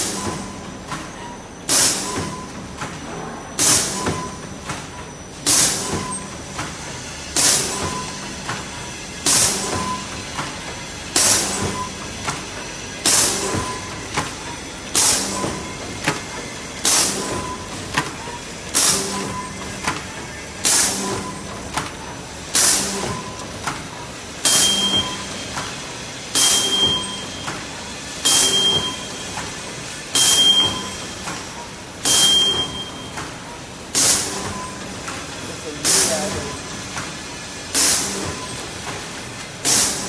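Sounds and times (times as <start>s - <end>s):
pneumatic air hiss: 1.7s - 2.2s, 3.6s - 4.2s, 5.4s - 6.1s, 7.3s - 8.0s, 9.2s - 10.1s, 26.3s - 26.8s, 28.2s - 28.7s, 32.0s - 32.4s, 33.9s - 34.5s, 37.7s - 38.4s, 39.6s - 40.0s.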